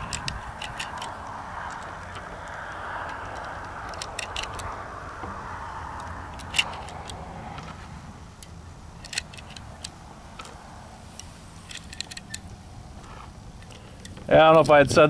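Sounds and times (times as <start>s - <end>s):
cartridges clicking into magazine: 0.0s - 4.8s, 8.4s - 12.6s
steady background hiss: 0.0s - 15.0s.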